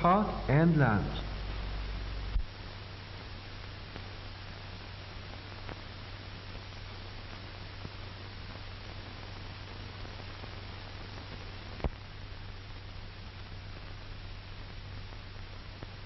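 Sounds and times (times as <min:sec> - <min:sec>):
low hum: 0:00.0 - 0:05.0
film soundtrack hiss: 0:00.0 - 0:16.0.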